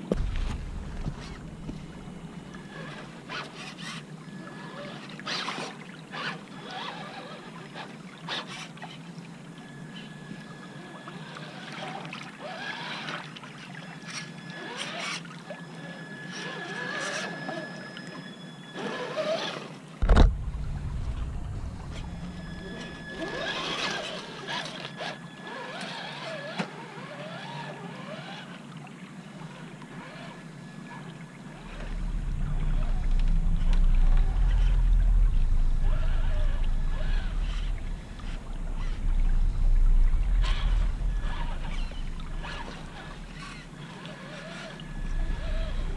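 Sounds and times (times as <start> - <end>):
electric motor whine: 0.0 - 28.6, 29.4 - 45.9
water splashing and sloshing: 0.0 - 45.9
loud thump: 0.1 - 1.8, 20.0 - 22.1.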